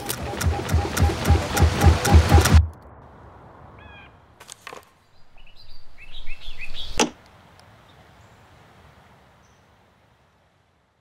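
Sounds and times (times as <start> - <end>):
sharp glitch clicks: 0.0 - 2.7.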